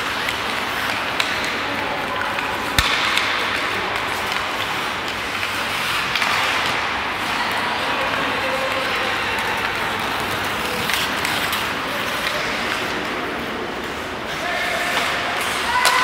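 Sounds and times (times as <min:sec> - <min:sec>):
arena noise: 0:00.0 - 0:16.0
hockey sticks clicking on puck: 0:00.0 - 0:16.0
skates scraping ice: 0:00.0 - 0:16.0
sharp crack: 0:02.3 - 0:07.0.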